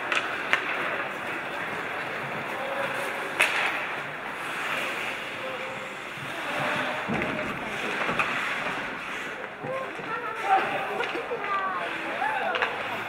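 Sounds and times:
sharp crack: 0:03.3 - 0:05.0.

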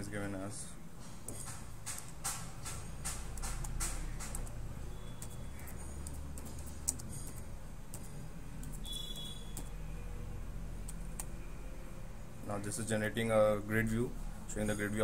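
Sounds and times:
keyboard typing clicks: 0:01.3 - 0:09.8, 0:10.8 - 0:11.4.

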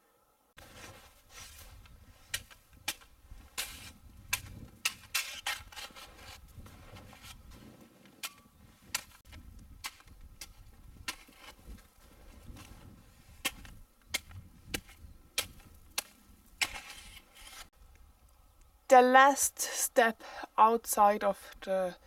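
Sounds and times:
snow shovel chopping and scraping: 0:00.6 - 0:17.7.

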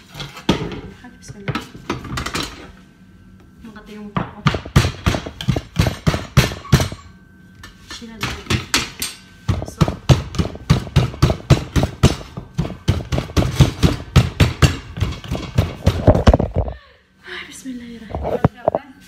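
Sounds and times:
bottle pounding potato in bowl: 0:09.5 - 0:16.4.

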